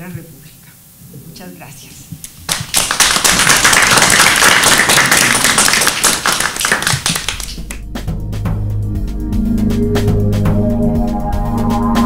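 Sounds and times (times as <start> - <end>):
audience applauding: 2.5 - 7.8
organ-like music: 7.8 - 12.0.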